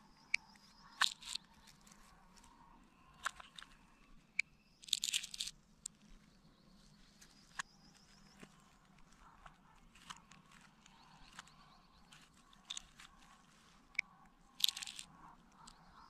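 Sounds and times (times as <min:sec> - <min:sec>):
sharp plastic clicks: 0:00.2 - 0:01.8, 0:03.2 - 0:05.5, 0:13.9 - 0:15.9.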